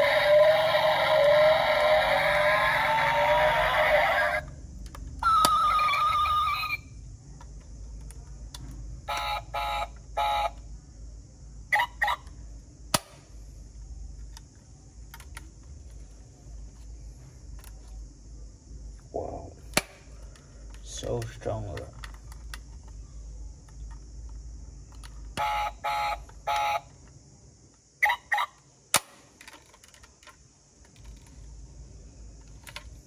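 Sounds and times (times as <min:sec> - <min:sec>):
toy revving engine sound: 0:00.0 - 0:04.5, 0:05.2 - 0:06.9
toy car door clicks: 0:04.8 - 0:05.8, 0:28.9 - 0:31.3.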